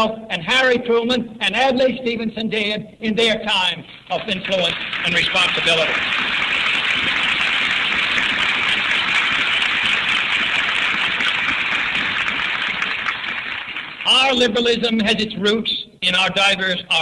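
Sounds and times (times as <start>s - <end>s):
audience applauding: 3.9s - 14.6s.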